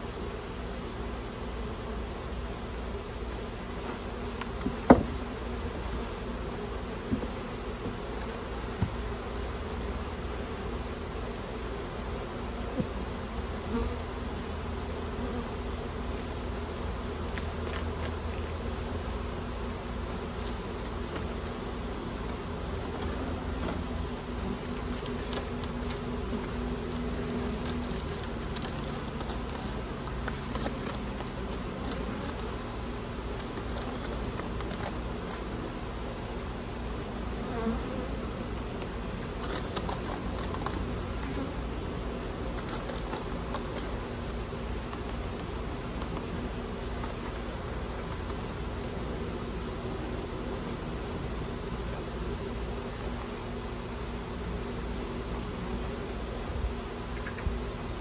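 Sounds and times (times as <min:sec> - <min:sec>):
honey bees humming: 0:00.0 - 0:58.0
hive frames knocking: 0:04.5 - 0:05.3.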